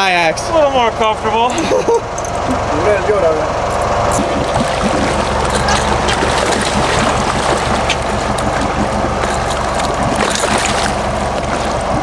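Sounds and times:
boat engine idling: 0.0 - 12.0
water splashing against hull: 3.6 - 12.0.

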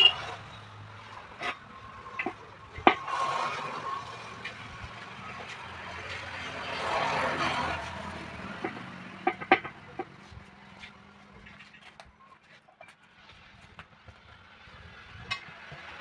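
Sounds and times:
motorcycle passing: 0.0 - 12.0.

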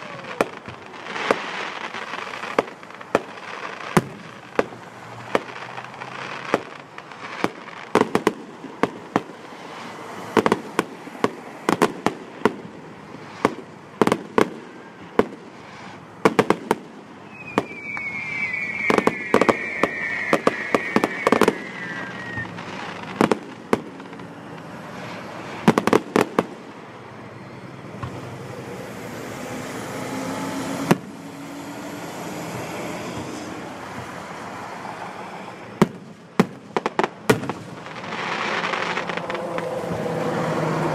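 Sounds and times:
fireworks bursting with bangs: 0.0 - 27.2, 30.7 - 40.9
high falling whistle: 17.3 - 22.6.

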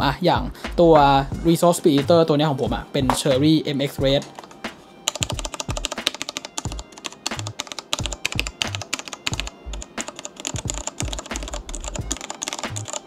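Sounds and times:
fast typing on mechanical keyboard: 5.1 - 13.0.

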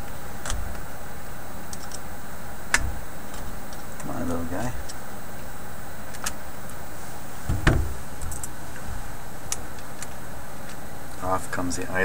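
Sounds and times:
low background hum: 0.0 - 12.0
dull knock on workbench: 7.5 - 8.0.

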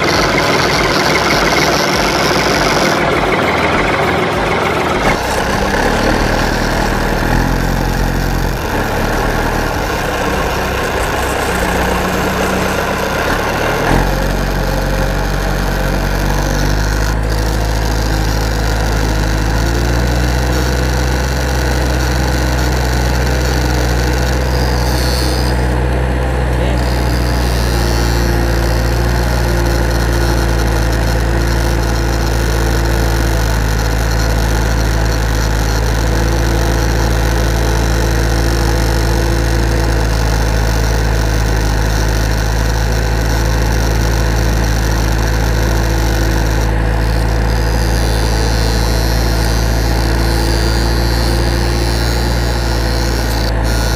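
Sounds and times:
loud low drone: 0.0 - 33.7
high whine: 0.0 - 53.9.

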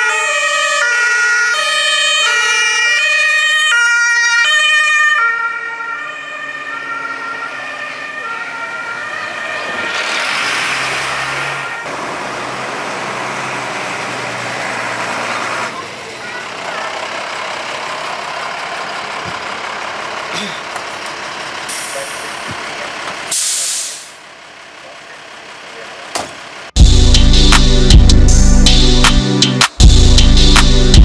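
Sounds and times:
two-tone emergency siren: 0.0 - 15.8
fire engines driving past: 0.0 - 26.9.

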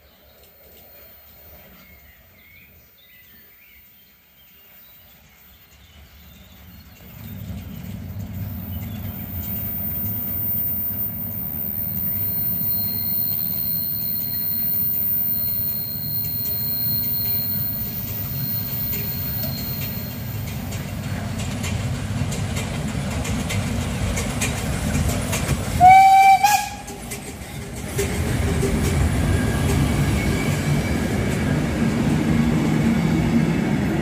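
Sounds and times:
steam train rumble: 4.6 - 34.0
high wheel squeal: 9.3 - 20.4.

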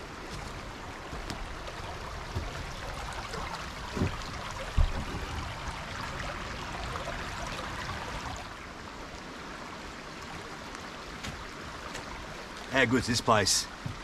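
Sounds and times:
creek water trickling over stones: 0.0 - 14.0
low thump: 3.9 - 5.3.

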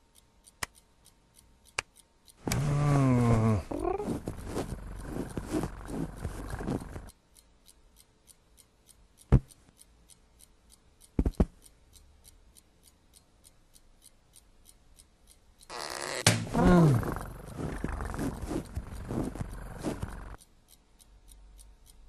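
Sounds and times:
clock ticking: 0.0 - 22.0
cartoon cat vocal noise: 2.5 - 4.2.

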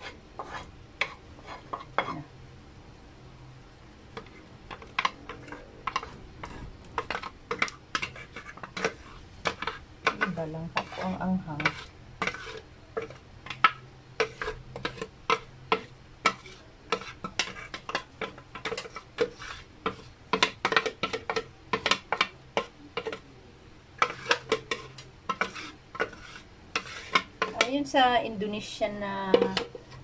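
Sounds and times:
utensil scraping and tapping jar: 4.2 - 23.2, 24.0 - 27.7, 29.3 - 30.0.

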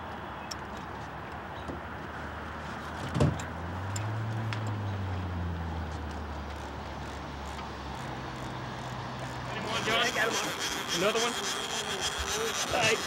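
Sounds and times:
low motor hum: 3.3 - 13.0.

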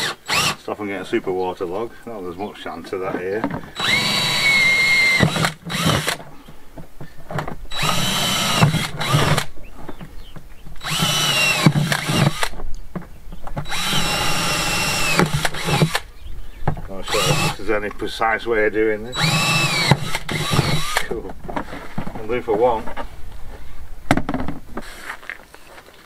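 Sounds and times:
cordless drill boring plastic: 0.0 - 0.6, 3.8 - 6.2, 7.7 - 9.5, 10.8 - 12.6, 13.6 - 16.1, 17.0 - 17.6, 19.1 - 21.9, 24.8 - 25.1.

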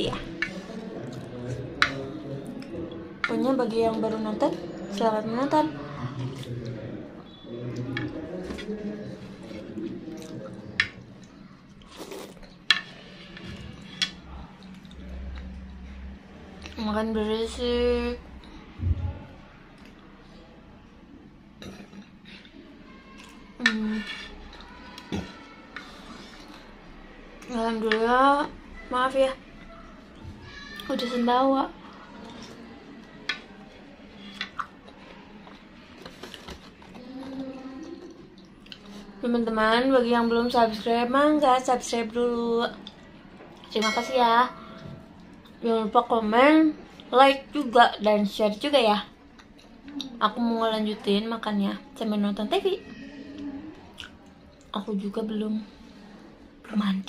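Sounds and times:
mouth smacking while eating: 34.2 - 35.6, 53.9 - 54.3.

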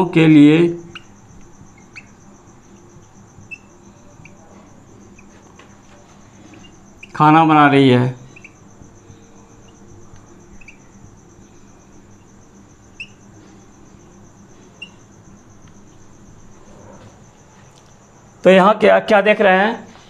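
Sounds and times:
marker squeaking on whiteboard: 0.8 - 7.5, 8.2 - 11.6, 12.9 - 13.4, 14.7 - 15.1.

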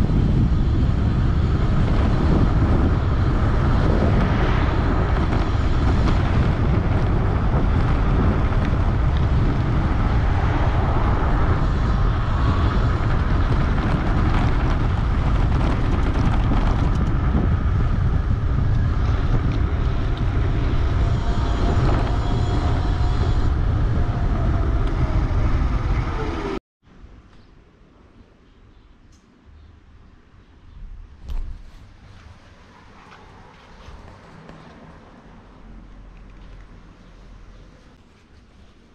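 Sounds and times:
wind rushing over microphone: 0.0 - 26.6.

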